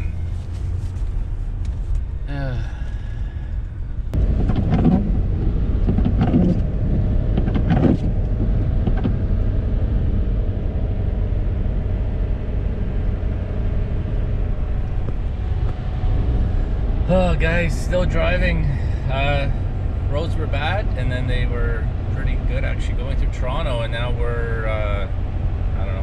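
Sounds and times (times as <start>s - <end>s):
pickup truck rumble from inside cab: 0.0s - 26.0s.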